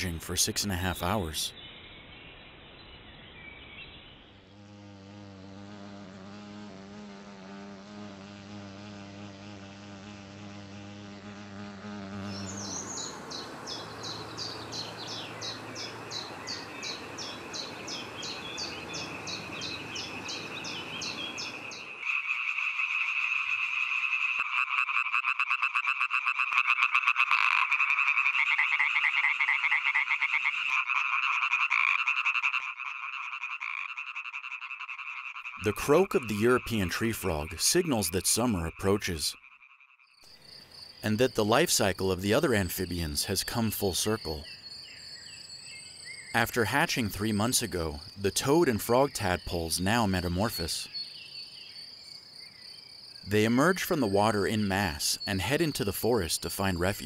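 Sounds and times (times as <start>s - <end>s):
frogs croaking in chorus: 12.3s - 57.0s.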